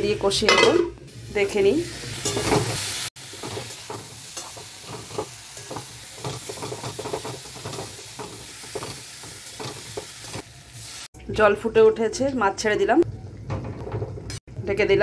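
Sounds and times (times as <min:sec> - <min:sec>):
food sizzling in oil: 0:00.0 - 0:11.3
spatula scraping wok: 0:01.9 - 0:11.1.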